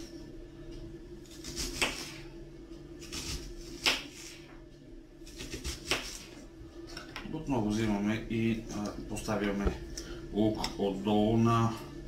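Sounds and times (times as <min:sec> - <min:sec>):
knife slicing onion: 0:01.2 - 0:02.3, 0:03.0 - 0:04.5, 0:05.2 - 0:06.4
blade knocking on cutting board: 0:09.6 - 0:09.8.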